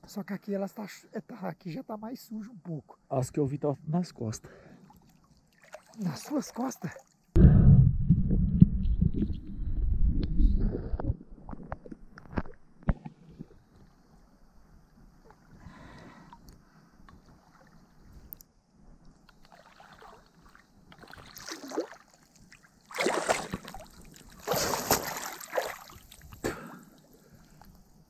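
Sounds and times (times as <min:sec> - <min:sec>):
water splashing and sloshing: 0:04.8 - 0:07.3, 0:15.3 - 0:18.4, 0:19.1 - 0:27.9.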